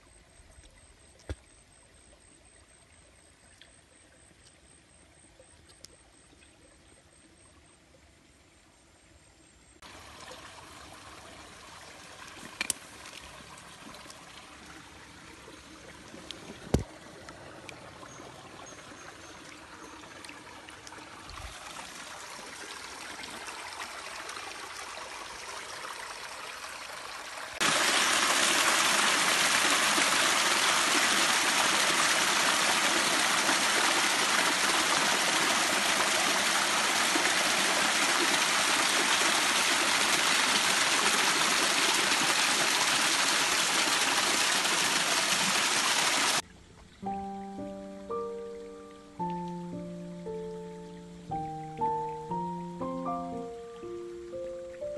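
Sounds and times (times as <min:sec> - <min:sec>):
small waterfall splashing: 0:09.8 - 0:46.5
stream trickling over rocks: 0:09.8 - 0:54.9.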